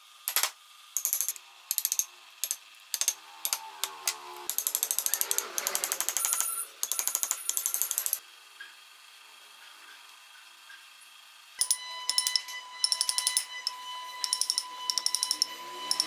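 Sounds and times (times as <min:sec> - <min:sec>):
rapid mechanical clicking: 0:00.2 - 0:08.2, 0:11.6 - 0:16.0.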